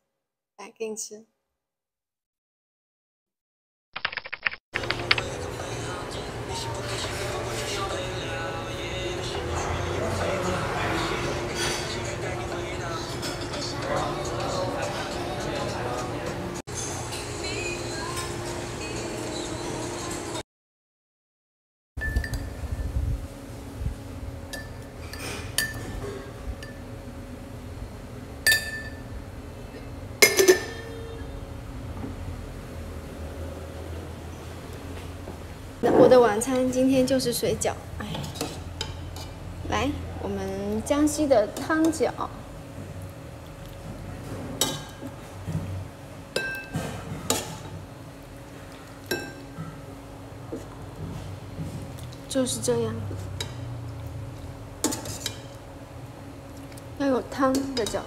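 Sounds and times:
spoons clinking on ceramic pots: 30.2 - 31.0, 46.4 - 47.6.

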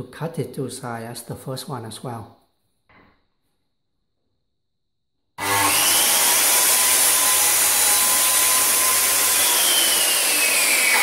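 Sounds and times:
circular saw cutting wood: 5.4 - 11.0.

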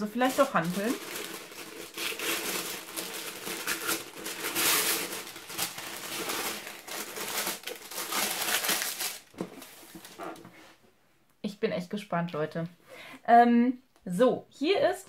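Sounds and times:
tissue paper crinkling: 0.0 - 10.4.

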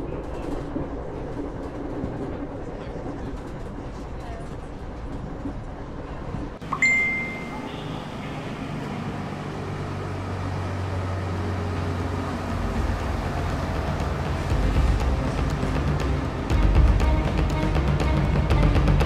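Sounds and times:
phone alert ping: 6.6 - 7.9.

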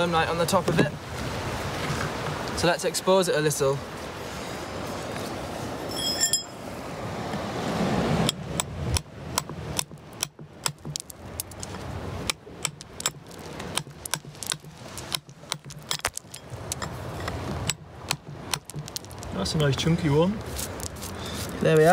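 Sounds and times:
metal tool chipping rock: 8.3 - 19.4.

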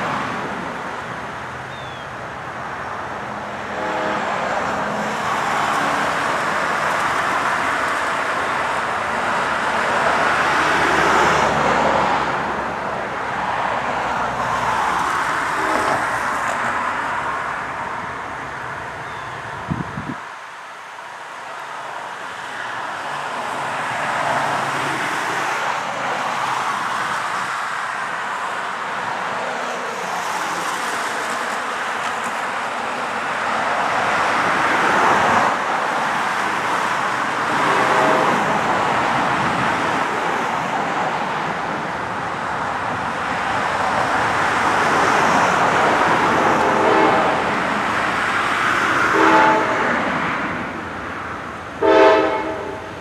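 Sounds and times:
road traffic rushing: 0.0 - 53.0
train air horn blasts: 3.6 - 5.2, 46.6 - 47.4, 49.0 - 50.1, 51.8 - 53.0.

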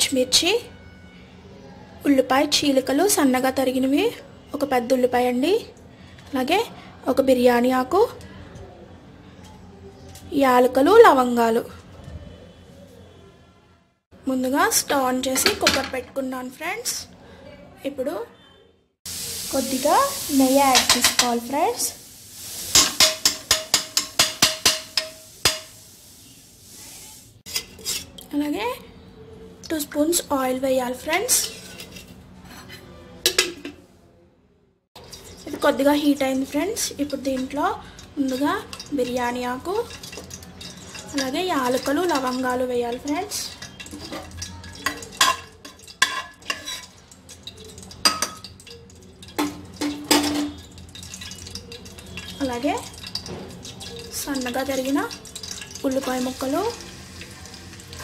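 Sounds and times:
pot ringing tone: 0.3 - 1.8, 35.0 - 58.0
spices sizzling in oil: 19.1 - 28.1, 35.0 - 58.0
metal spoon tapping pot: 20.7 - 21.4, 22.8 - 25.8, 33.2 - 33.8, 35.0 - 58.0.

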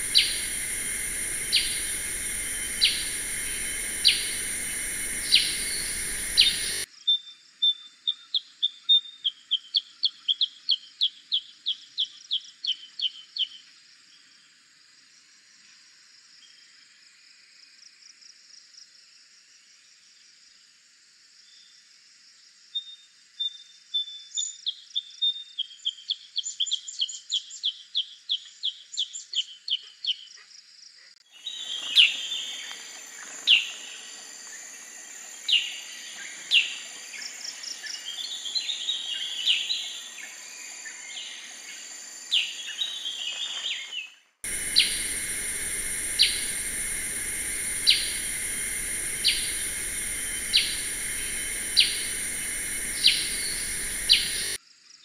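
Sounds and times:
bird chirping: 0.0 - 6.9, 44.5 - 54.6
high insect droning: 0.0 - 6.9, 31.3 - 54.6
sharp downward bird calls: 0.0 - 6.9, 44.5 - 54.6.

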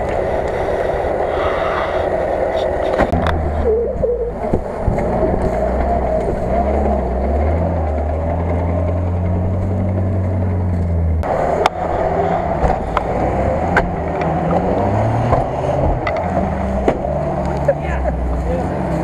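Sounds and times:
off-road vehicle engine under load: 0.0 - 19.0
twigs snapping under tyres: 12.6 - 18.4.

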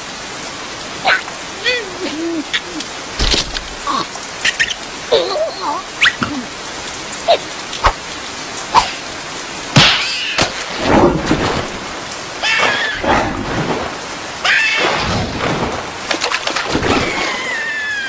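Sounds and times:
heavy rain: 0.0 - 18.0
high-pitched character squeals: 14.4 - 15.0, 17.0 - 18.0.

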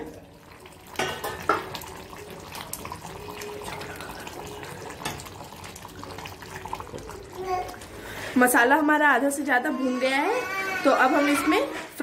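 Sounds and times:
curry bubbling in a pot: 0.0 - 9.4.

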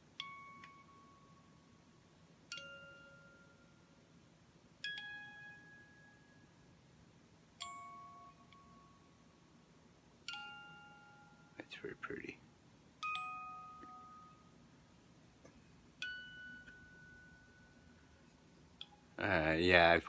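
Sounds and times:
music box playing slow tune: 0.0 - 6.9, 7.6 - 9.6, 10.2 - 11.7, 13.0 - 14.8, 15.5 - 19.2.

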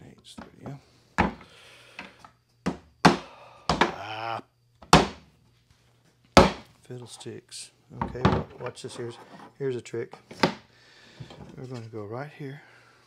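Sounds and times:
mallet knocking wooden parts: 2.7 - 4.0, 4.8 - 5.2, 6.4 - 6.7.

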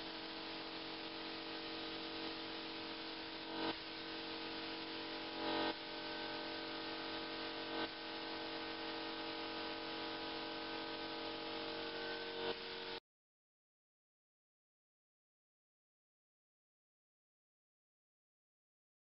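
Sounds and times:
paint spray gun hissing: 0.0 - 13.0.

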